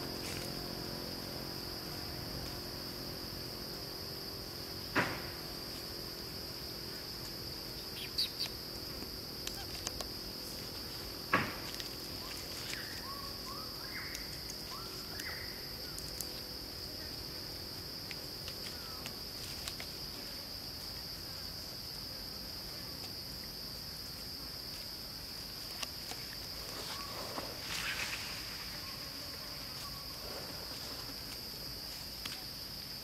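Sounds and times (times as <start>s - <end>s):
insects droning: 0.0s - 33.0s.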